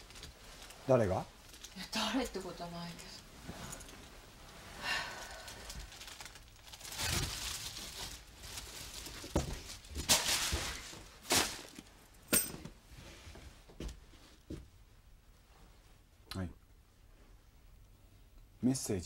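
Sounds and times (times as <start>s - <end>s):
plastic bag rustling: 0.0s - 2.8s, 3.6s - 12.0s.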